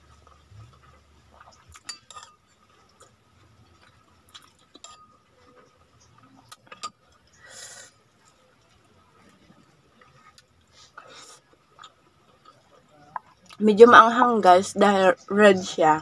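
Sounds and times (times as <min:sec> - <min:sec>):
metal spoon clinking ceramic bowl: 0:01.9 - 0:02.4.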